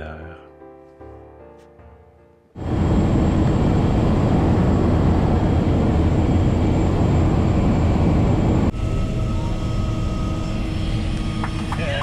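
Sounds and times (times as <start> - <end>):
plane engine and propeller drone: 2.6 - 12.0
steady whining tones: 2.6 - 12.0.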